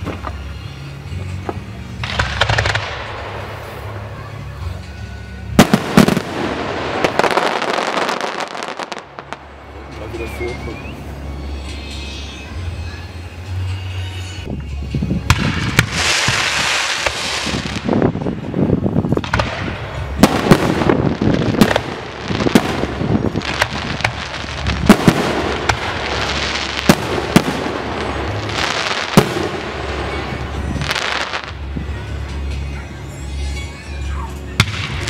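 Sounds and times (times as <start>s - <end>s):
fireworks hissing and crackling: 0.0s - 12.4s, 15.2s - 31.8s
fireworks bangs: 1.4s - 4.6s, 5.6s - 10.8s, 15.2s - 31.6s, 34.6s - 35.0s.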